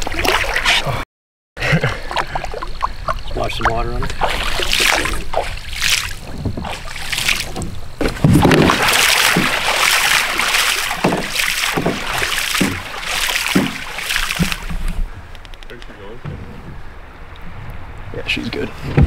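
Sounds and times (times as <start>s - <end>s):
fish tail splashing water: 2.0s - 15.1s.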